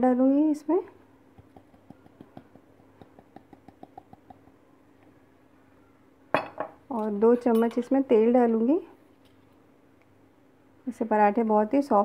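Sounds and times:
flour tapping on steel bowl: 1.4 - 4.4.

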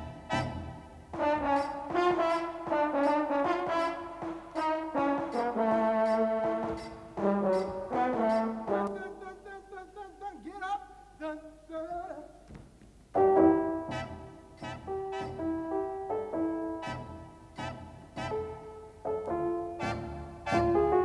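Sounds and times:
brass melody: 0.0 - 9.8, 13.2 - 21.0
thumps: 12.4 - 13.0.

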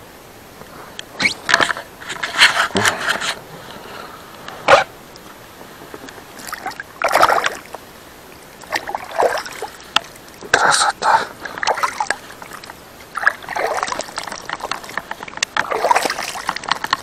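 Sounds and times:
water splashing beside boat: 0.2 - 17.0
sharp water slap: 6.4 - 7.6, 15.4 - 16.8.

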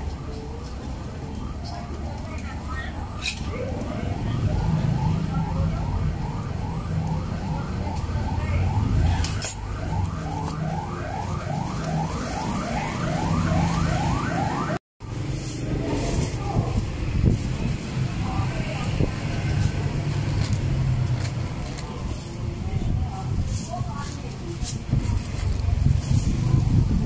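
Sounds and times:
electronic siren sweeping: 0.0 - 14.8
low rumble of traffic: 0.0 - 27.0.

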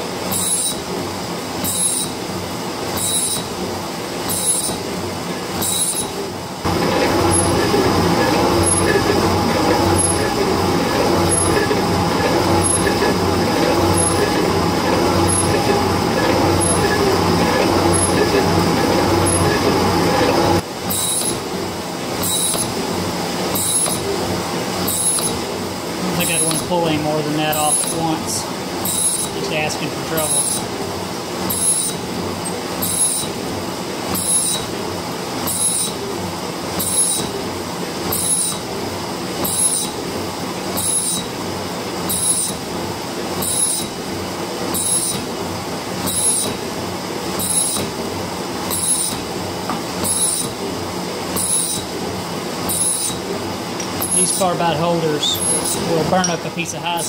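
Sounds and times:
metal shaper cutting steel: 0.3 - 0.8, 1.6 - 2.2, 3.0 - 3.4, 4.3 - 4.8, 5.6 - 21.4, 22.2 - 22.7, 23.5 - 24.1, 24.9 - 25.4, 26.1 - 30.6, 51.4 - 51.8, 52.7 - 53.2, 54.0 - 57.0
tool scraping metal: 6.7 - 21.4, 22.2 - 22.7, 23.6 - 24.0, 24.9 - 25.4, 26.2 - 28.2, 55.2 - 56.4.

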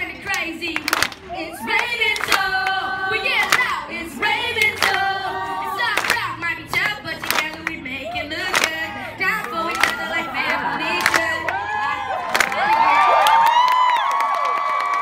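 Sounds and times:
person singing through speakers: 0.0 - 12.4
hands clapping: 0.3 - 2.4, 6.0 - 7.8, 8.5 - 8.8, 9.4 - 10.0, 11.0 - 11.2, 12.3 - 15.0.

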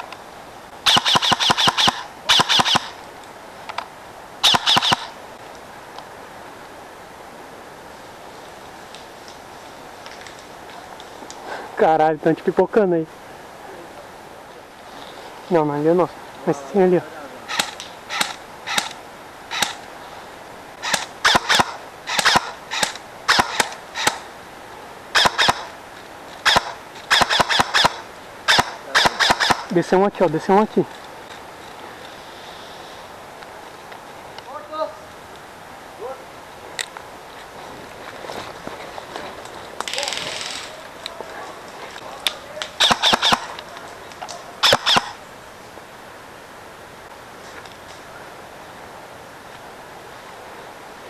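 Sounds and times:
airsoft gun firing: 0.9 - 3.0, 4.4 - 5.1, 20.8 - 24.2, 25.2 - 25.7, 26.4 - 29.7, 42.8 - 43.6, 44.6 - 45.2.

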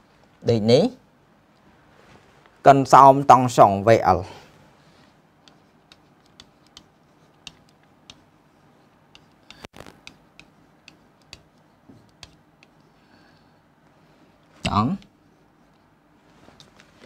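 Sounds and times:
pen tapping on whiteboard screen: 5.4 - 8.3, 9.1 - 12.9.

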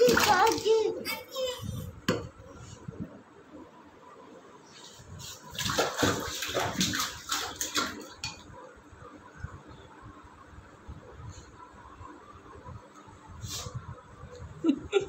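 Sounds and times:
water splashing in a metal sink: 5.5 - 8.4.

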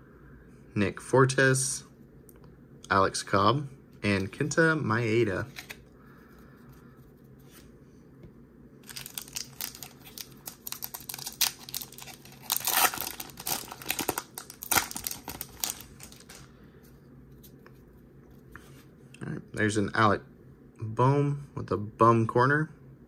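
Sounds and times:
plastic wrapper tearing and crinkling: 8.8 - 16.5.

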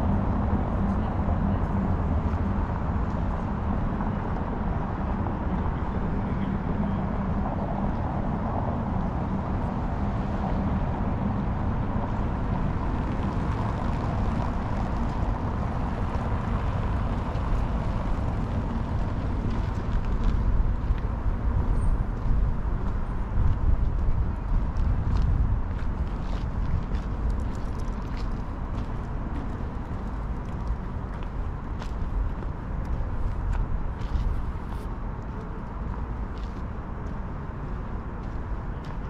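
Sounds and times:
traffic rumble: 0.0 - 39.0.

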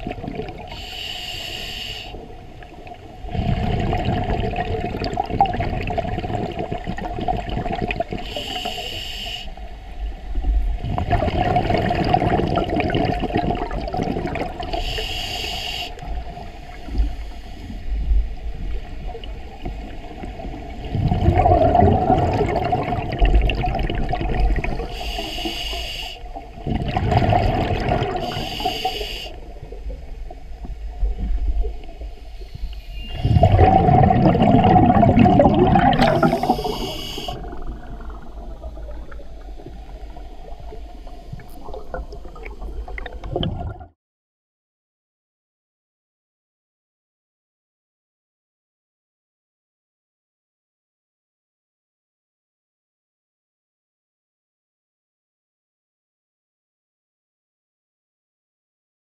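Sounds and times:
exhaled bubbles bubbling: 0.0 - 0.9, 2.6 - 8.5, 10.5 - 15.0, 19.0 - 25.3, 26.5 - 30.1, 33.0 - 43.9
regulator hissing inhalations: 0.7 - 2.3, 8.2 - 9.6, 14.7 - 18.0, 24.9 - 26.4, 28.2 - 29.4, 32.3 - 33.4, 36.0 - 37.4.

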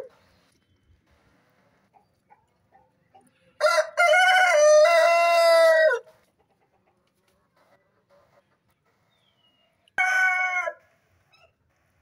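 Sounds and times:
rooster crowing: 3.6 - 6.1, 10.0 - 10.9.

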